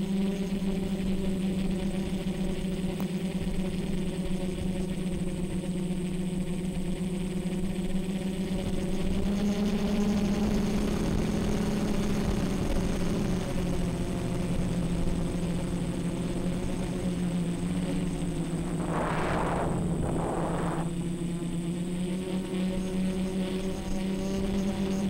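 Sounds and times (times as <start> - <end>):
drone propellers humming: 13.9 - 21.7.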